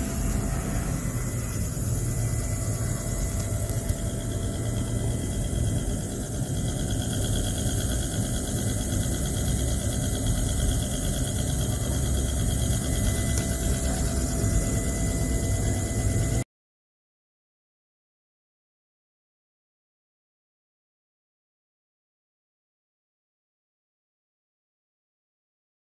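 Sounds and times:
magnetic stirrer motor humming: 0:00.0 - 0:16.4.

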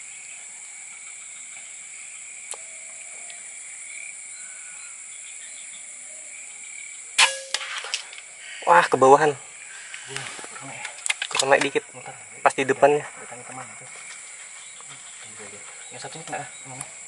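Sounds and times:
insects chirring: 0:00.0 - 0:17.0
air rifle shot: 0:07.2 - 0:08.2
small crack: 0:07.2 - 0:08.3, 0:09.9 - 0:11.8.

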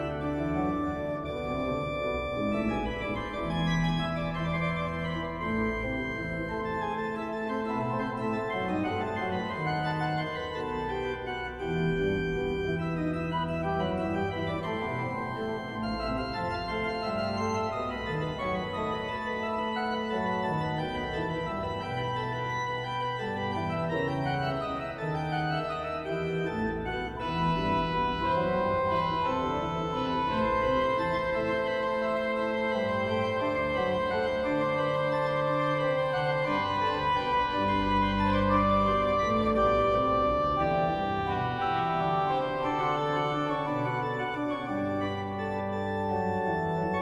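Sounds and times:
organ playing slow chords: 0:00.0 - 0:47.0.

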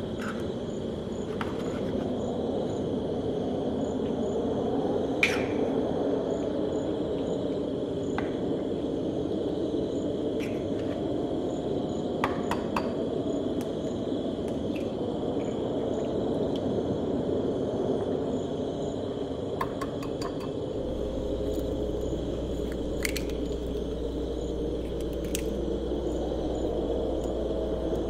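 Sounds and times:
crickets chirping: 0:00.0 - 0:28.0
steady low rumble: 0:13.0 - 0:28.0
eggshells cracking: 0:20.8 - 0:27.4.

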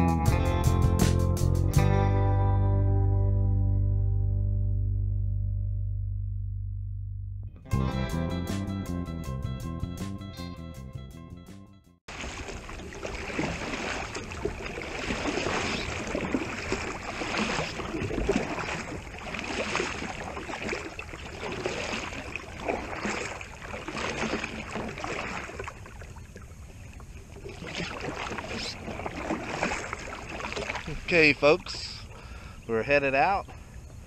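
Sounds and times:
kayak paddle splashing in water: 0:12.1 - 0:32.6.

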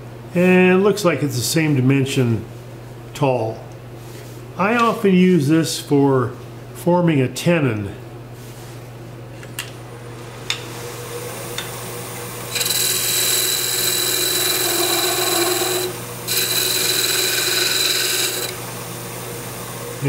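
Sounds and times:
tool scraping spinning wood: 0:12.5 - 0:18.6
lathe humming: 0:12.5 - 0:18.9.

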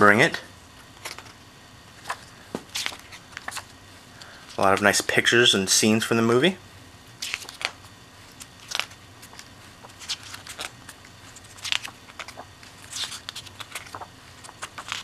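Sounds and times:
booklet pages turning: 0:01.0 - 0:01.4, 0:02.0 - 0:05.1, 0:07.2 - 0:15.0.

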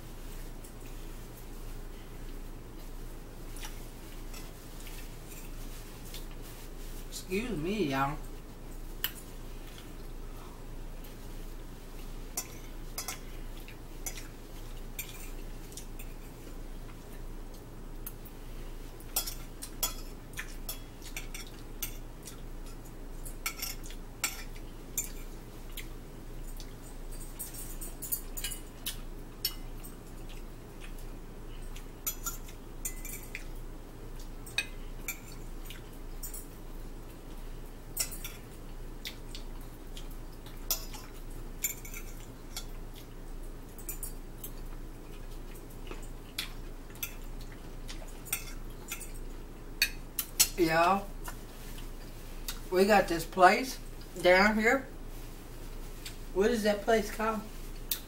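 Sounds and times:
forks clinking on plates: 0:12.4 - 0:13.3, 0:19.2 - 0:25.3, 0:26.5 - 0:28.8, 0:32.0 - 0:33.5, 0:37.9 - 0:38.5, 0:40.7 - 0:42.8, 0:43.7 - 0:44.6, 0:48.2 - 0:50.6.

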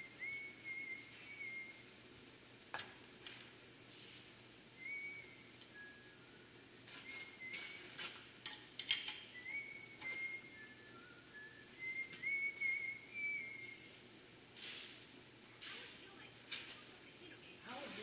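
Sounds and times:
man whistling a tune: 0:00.0 - 0:01.9, 0:04.8 - 0:08.0, 0:09.3 - 0:13.9.

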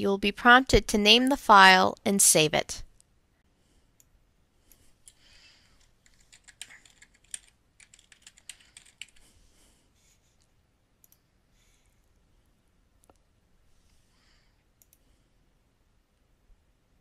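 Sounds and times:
faint keyboard typing: 0:04.7 - 0:09.4, 0:14.8 - 0:15.1.

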